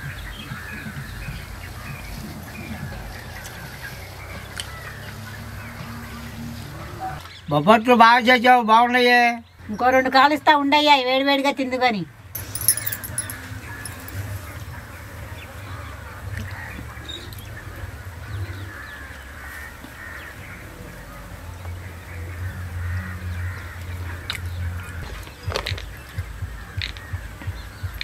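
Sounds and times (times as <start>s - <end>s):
birds calling faintly: 0.0s - 7.6s, 12.4s - 14.2s.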